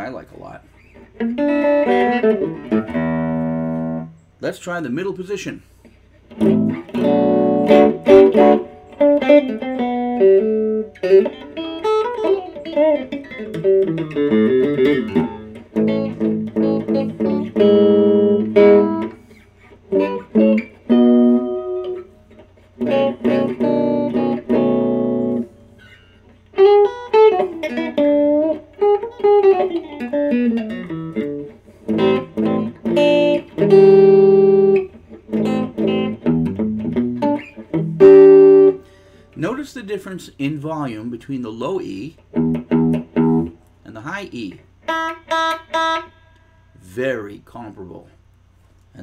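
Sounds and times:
electric guitar through tube amp: 0:00.0 - 0:04.2, 0:05.8 - 0:46.9.

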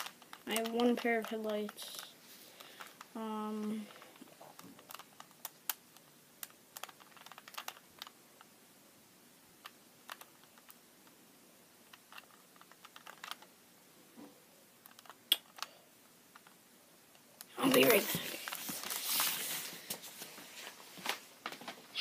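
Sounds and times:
puzzle cube clicking: 0:00.0 - 0:08.2, 0:09.6 - 0:11.2, 0:11.8 - 0:13.5, 0:14.8 - 0:15.7.

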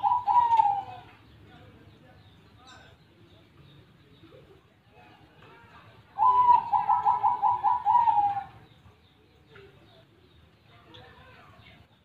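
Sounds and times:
dove cooing: 0:00.0 - 0:01.2, 0:06.1 - 0:08.8.

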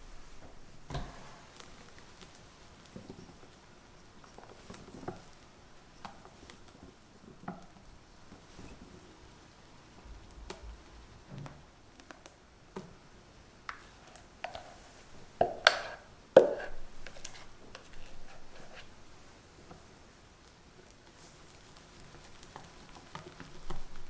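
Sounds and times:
utensils tapping and scraping bowl: 0:13.7 - 0:18.9.

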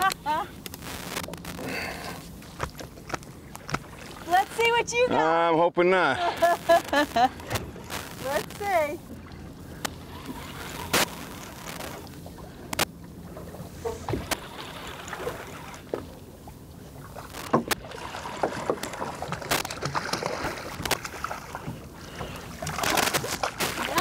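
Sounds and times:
water lapping against boat hull: 0:00.0 - 0:05.4, 0:06.0 - 0:24.0
sharp clicks and knocks: 0:17.4 - 0:17.8.

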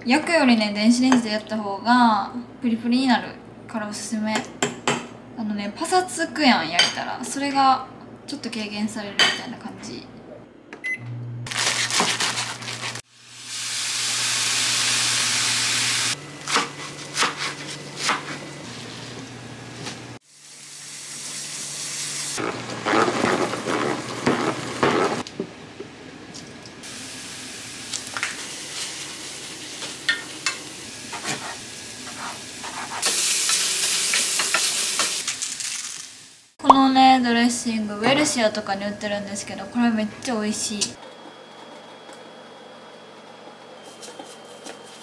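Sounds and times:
food sizzling in a frying pan: 0:11.5 - 0:16.2, 0:20.2 - 0:22.9, 0:26.8 - 0:36.6
wooden spatula stirring in pan: 0:22.4 - 0:25.2.

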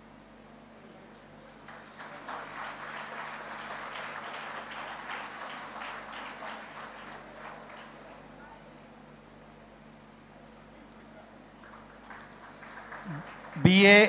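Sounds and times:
audience applauding: 0:01.4 - 0:08.5, 0:11.6 - 0:14.0.

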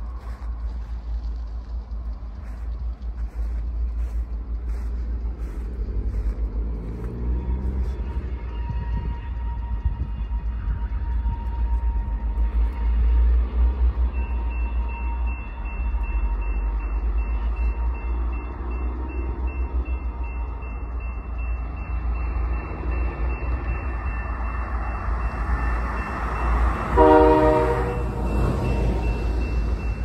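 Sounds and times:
train rumble: 0:00.0 - 0:30.0
car passing: 0:01.4 - 0:09.2
crossing warning bell ringing: 0:03.2 - 0:30.0
train horn blast: 0:26.8 - 0:28.6.

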